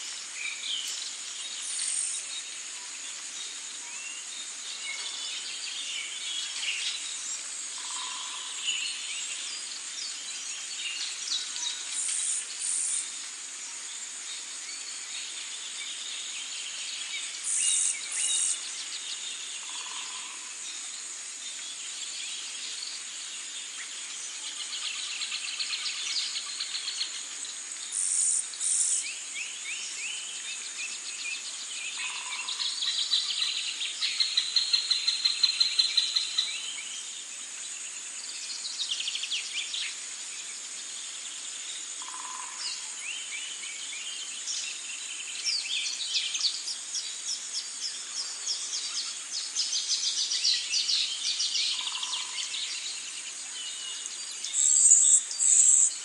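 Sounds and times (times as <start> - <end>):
birds singing and chirping: 14.7 - 20.9, 21.5 - 37.4, 38.1 - 56.0
high-pitched insect drone: 28.0 - 29.1.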